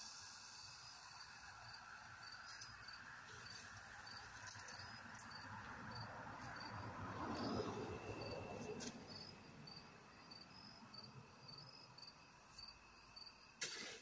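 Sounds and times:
insects chirping: 0.0 - 14.0.

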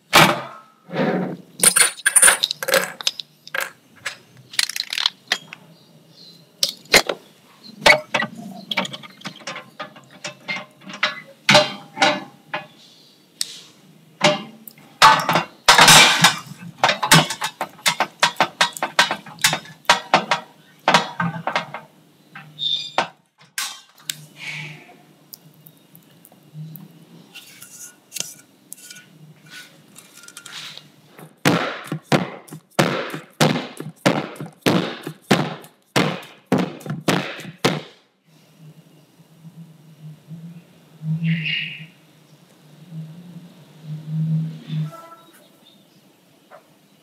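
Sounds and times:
spatula scraping saucepan: 27.4 - 30.8.

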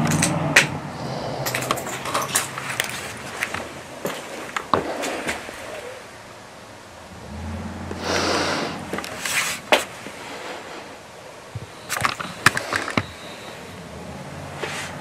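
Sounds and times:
sharp clicks and knocks: 0.0 - 0.8
breathing through respirator: 0.9 - 2.6, 7.9 - 9.0.

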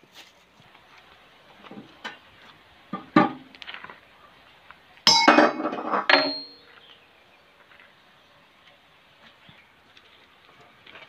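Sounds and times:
hammer striking steel pin: 5.1 - 6.6.

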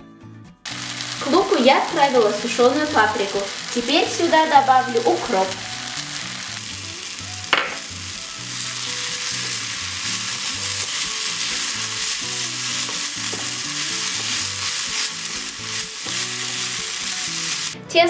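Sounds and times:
onions sizzling in oil: 0.7 - 17.8
knock: 7.5 - 7.8.

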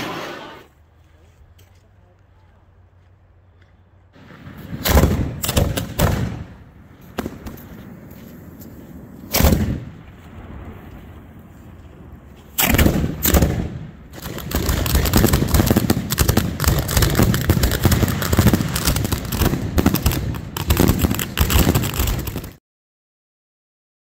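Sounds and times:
fireworks barrage: 0.0 - 0.7, 4.2 - 22.6
firework bangs: 4.2 - 22.6.

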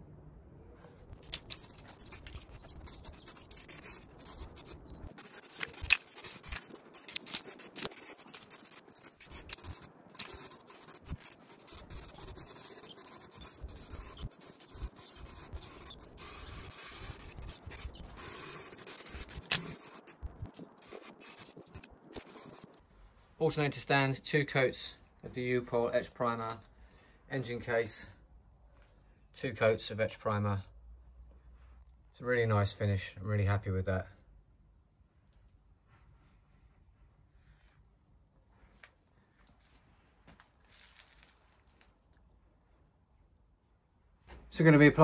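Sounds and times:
aerosol can spraying: 1.3 - 22.7.

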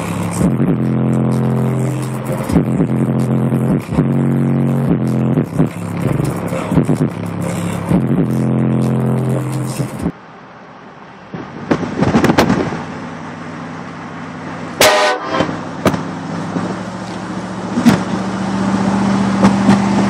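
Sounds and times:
vehicle running from inside cab: 0.0 - 20.0
train horn blast: 14.8 - 15.6.

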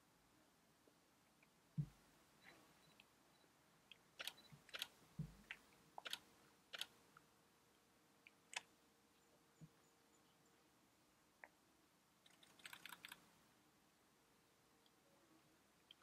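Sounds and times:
soft low thump: 1.8 - 2.0
faint sharp clicks: 3.9 - 8.7.

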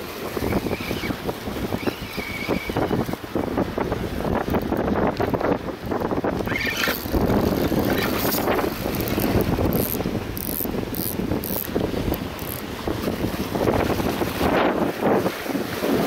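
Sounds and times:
waves on rocks: 0.0 - 16.0
wind buffeting microphone: 0.0 - 16.0
spinning reel being wound: 6.5 - 11.7, 12.4 - 12.6.

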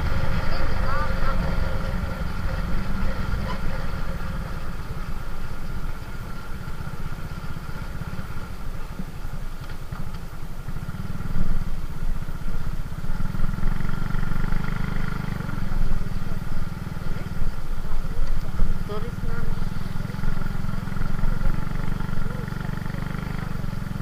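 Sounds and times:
motorcycle engine running: 0.0 - 24.0
wind and road noise: 0.0 - 24.0.

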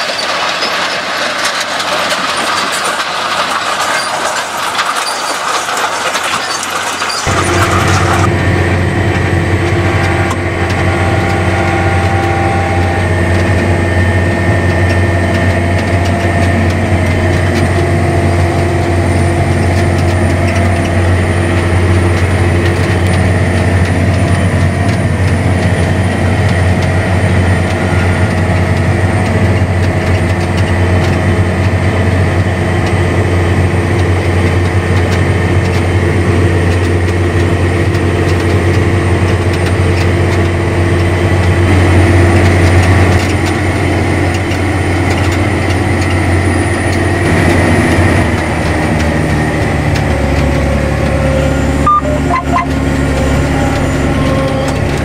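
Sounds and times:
tractor diesel engine drone: 0.0 - 55.0
steady whine: 7.0 - 33.7, 38.8 - 55.0.

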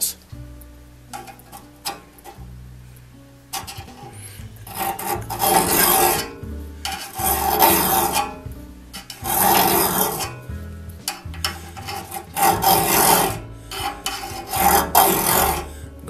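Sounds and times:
file rasping on saw tooth: 3.6 - 8.4, 9.0 - 10.5, 11.1 - 16.0.

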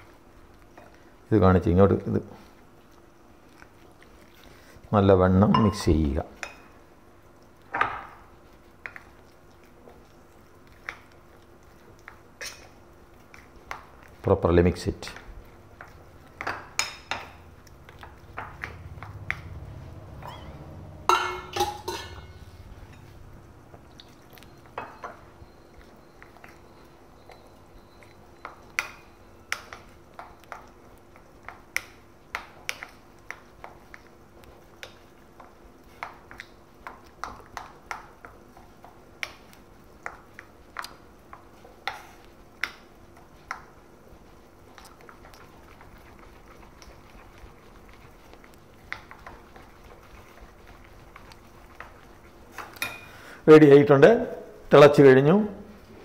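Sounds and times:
spoon clinking in bowl: 5.5 - 5.9, 21.1 - 23.1
low hum: 17.4 - 24.6.

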